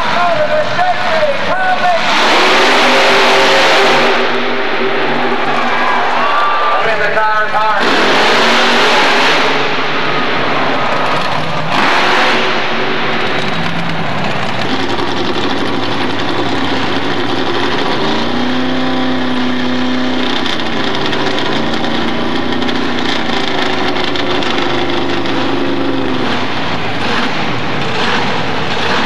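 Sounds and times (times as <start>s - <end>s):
vehicle engines running loudly: 0.0s - 29.0s.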